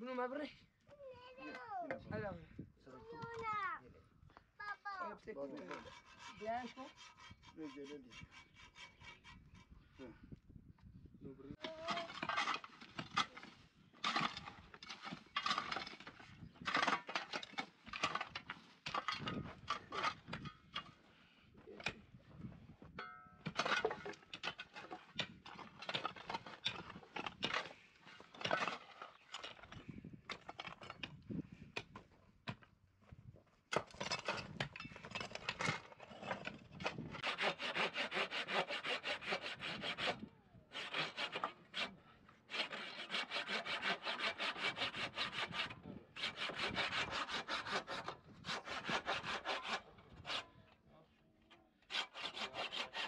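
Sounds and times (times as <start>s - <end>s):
hand saw cutting wood: 5.5s - 9.7s, 11.5s - 21.0s, 23.5s - 31.2s, 33.7s - 50.6s, 51.8s - 53.0s
shovels scraping stony soil: 11.6s - 21.0s, 23.4s - 32.6s, 33.7s - 50.5s, 51.8s - 53.0s.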